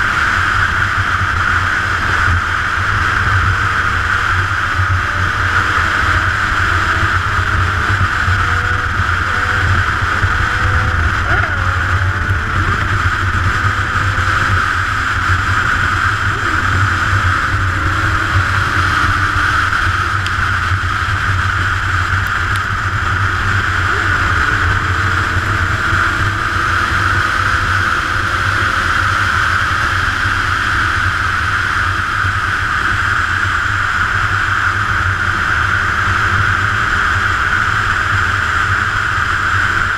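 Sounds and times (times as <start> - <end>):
motorcycle engine hum: 0.0 - 39.9
road noise: 0.0 - 39.9
wind rush: 0.0 - 39.9.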